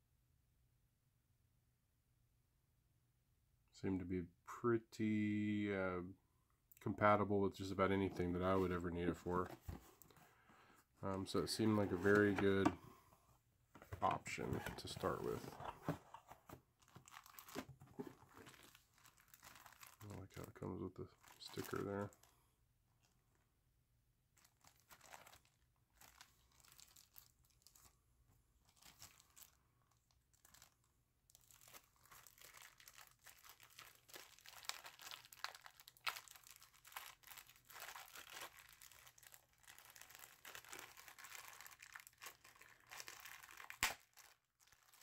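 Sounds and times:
plastic packaging crinkling: 14.0s - 22.3s, 24.4s - 28.0s, 28.7s - 45.0s.

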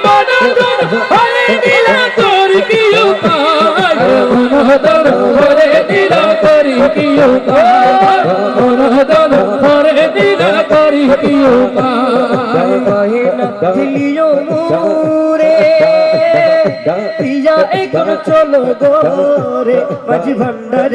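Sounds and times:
instrumental accompaniment with beat: 0.0s - 20.9s
men singing: 0.0s - 20.9s.

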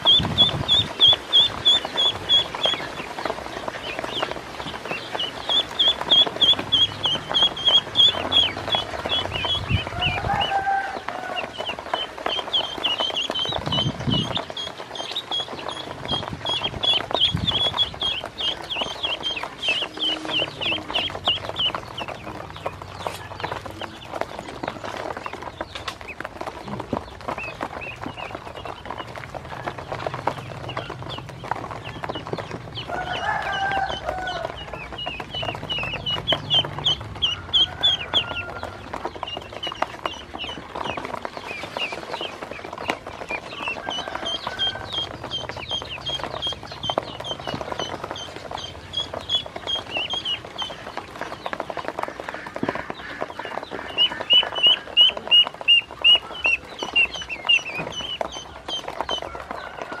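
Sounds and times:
ducklings peeping: 0.0s - 60.0s
bills tapping on plastic: 3.3s - 60.0s.

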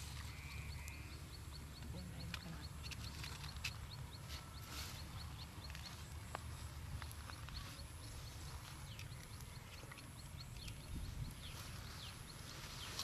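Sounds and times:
low wind rumble: 5.1s - 13.0s.

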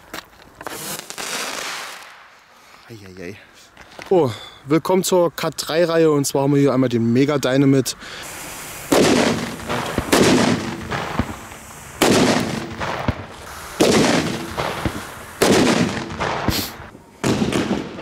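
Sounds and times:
loud firecracker bangs: 8.3s - 18.0s.

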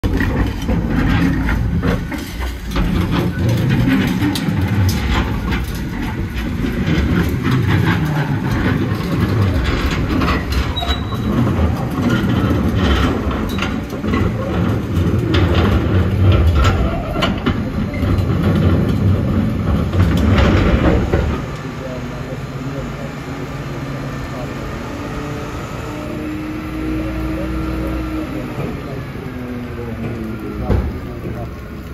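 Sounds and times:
metal skip clanking and scraping: 0.0s - 23.1s
diesel engine rumbling under load: 0.0s - 31.9s.

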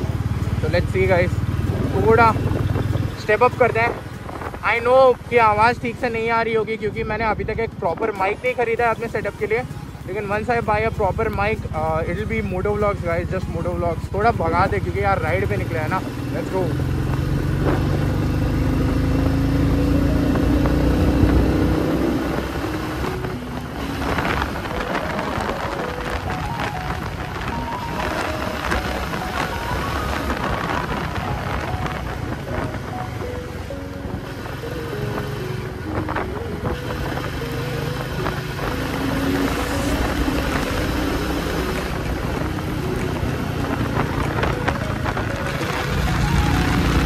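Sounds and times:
road noise: 0.0s - 47.0s
wind on microphone: 1.5s - 3.2s, 3.8s - 5.3s, 20.0s - 47.0s
motorcycle engine under throttle: 14.8s - 32.7s, 34.2s - 47.0s.

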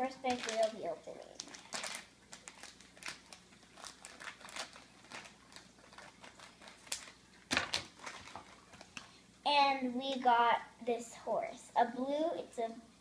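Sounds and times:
foil packet crinkling: 0.0s - 9.2s.

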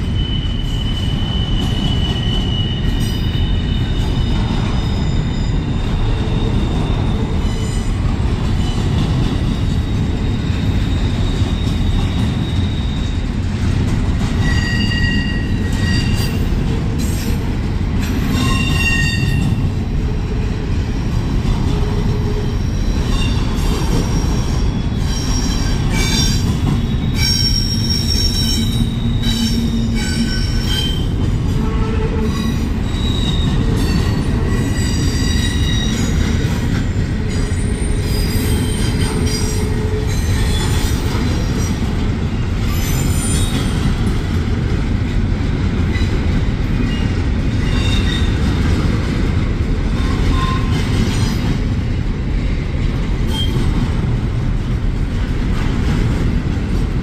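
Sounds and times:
high-pitched metallic squeals: 0.0s - 8.0s, 14.4s - 16.5s, 18.2s - 19.6s, 22.3s - 36.3s, 37.3s - 41.6s
train wheels rumbling on rail: 0.0s - 57.0s.

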